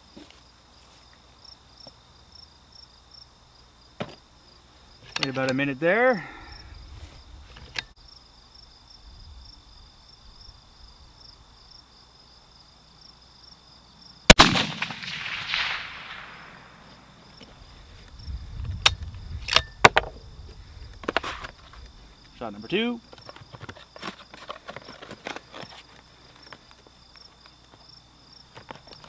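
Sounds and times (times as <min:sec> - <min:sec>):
rifle shot with echo: 0:14.3 - 0:17.1
rifle bolt metallic clicks: 0:18.8 - 0:20.1.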